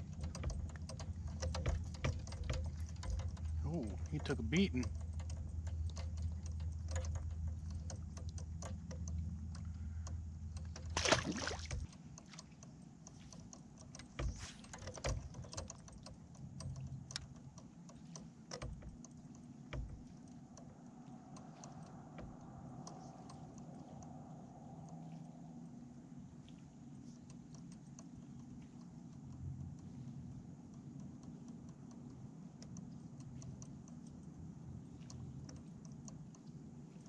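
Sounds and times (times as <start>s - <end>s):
gear clicking and ticking: 0.0s - 37.0s
low hum: 0.0s - 37.0s
fish splashing into water: 10.9s - 11.8s.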